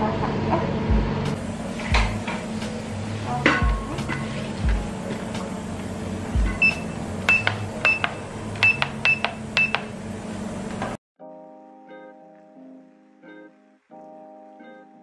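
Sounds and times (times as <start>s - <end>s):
short electronic beeps: 6.5s - 9.8s.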